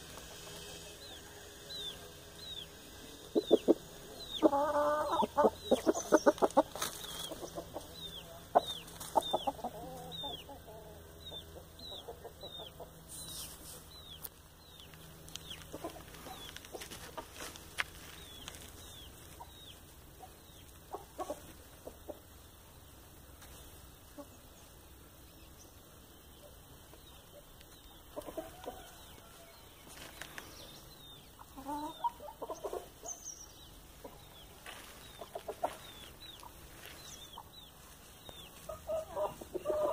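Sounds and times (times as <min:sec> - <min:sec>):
chickens clucking: 0:00.0 - 0:39.9
chick peeping: 0:00.1 - 0:39.9.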